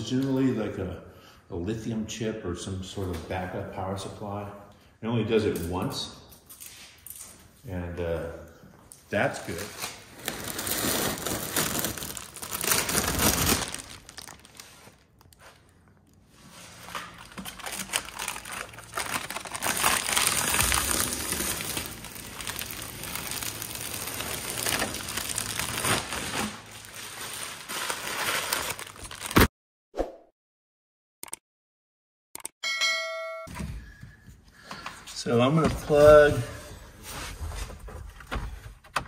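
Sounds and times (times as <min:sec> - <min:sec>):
plastic sheeting crinkling: 0:09.3 - 0:29.4.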